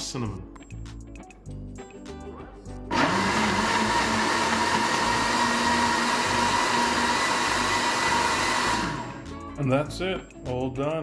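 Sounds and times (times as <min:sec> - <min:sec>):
blender motor whining: 0:02.9 - 0:09.3.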